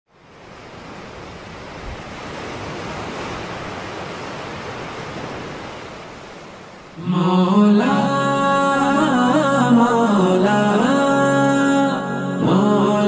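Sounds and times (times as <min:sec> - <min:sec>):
ocean waves breaking: 0:00.1 - 0:13.0.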